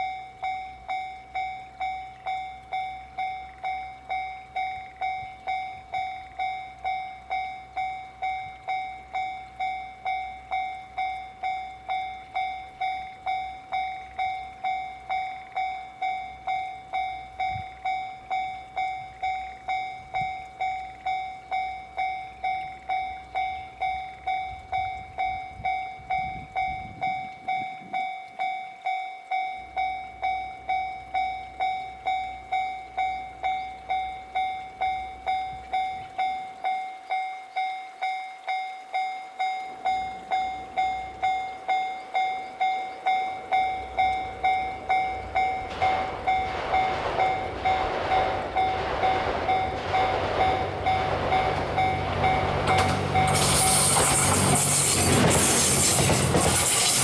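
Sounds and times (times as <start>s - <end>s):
level crossing bell ringing: 36.3s - 55.1s.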